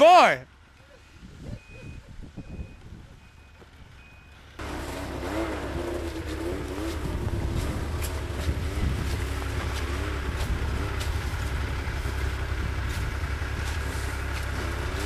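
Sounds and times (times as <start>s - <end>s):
faint reverse warning beeps: 0.7s - 4.6s
scuffling in snow: 4.6s - 15.0s
snowmobile engine running: 4.6s - 15.0s.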